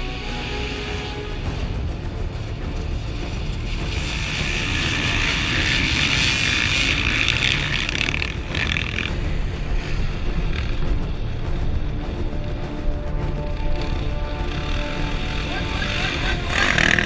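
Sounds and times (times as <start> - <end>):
motocross bikes racing past: 3.5 - 10.8, 13.6 - 17.0.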